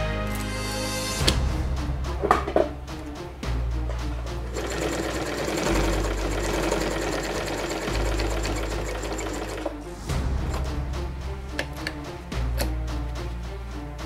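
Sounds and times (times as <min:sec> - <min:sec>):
background music: 0:00.0 - 0:14.0
sewing machine stitching: 0:04.5 - 0:09.8.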